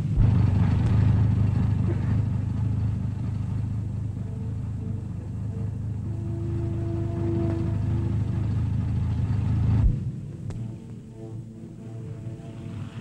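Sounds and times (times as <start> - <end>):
faint held music notes: 0.0 - 13.0
low rumble of truck engines: 0.0 - 13.0.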